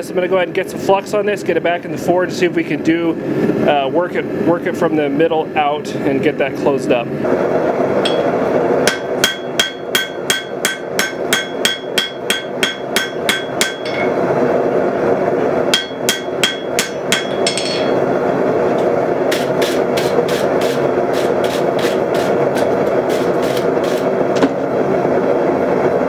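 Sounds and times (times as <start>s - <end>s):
steady background roar: 0.0s - 26.0s
hammer ringing on anvil: 8.0s - 8.3s, 8.9s - 14.2s, 15.7s - 18.0s.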